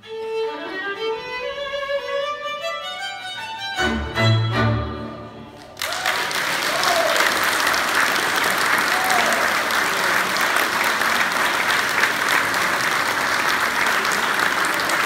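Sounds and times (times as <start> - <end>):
audience applauding: 5.6 - 15.0.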